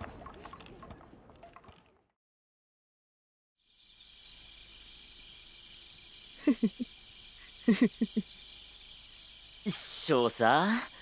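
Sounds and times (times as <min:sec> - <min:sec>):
cricket trilling: 0:03.6 - 0:11.0.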